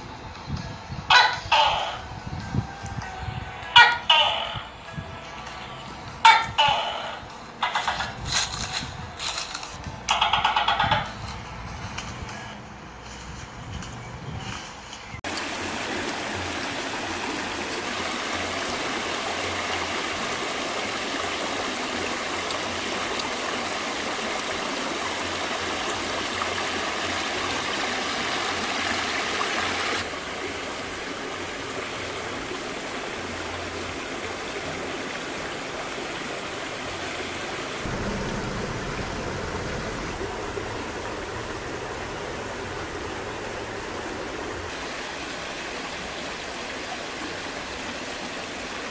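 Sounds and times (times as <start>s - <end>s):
stream rushing over rocks: 15.2s - 48.9s.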